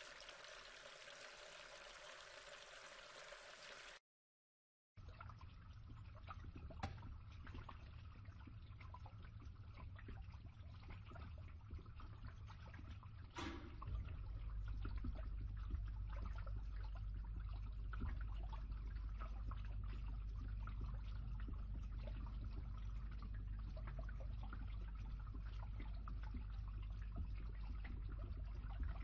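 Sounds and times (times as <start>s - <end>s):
water gurgle: 0.0s - 4.0s, 5.0s - 29.0s
water rushing through pipe: 0.0s - 4.0s
water trickling and dripping: 0.0s - 4.0s, 5.0s - 29.0s.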